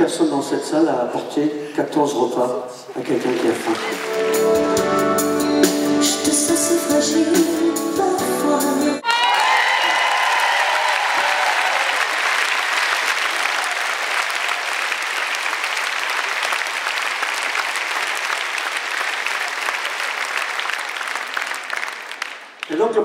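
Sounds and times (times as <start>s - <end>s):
audience applauding: 2.9s - 5.0s, 9.0s - 23.0s.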